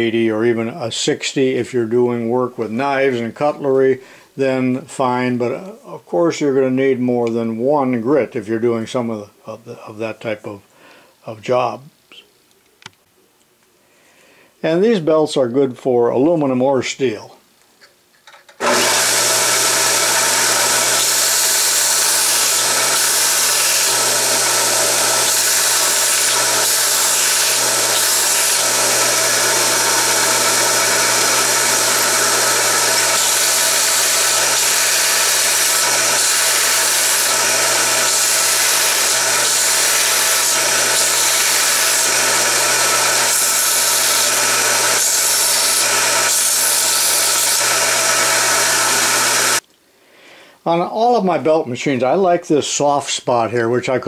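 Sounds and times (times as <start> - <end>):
belt sander running: 18.6 - 49.6.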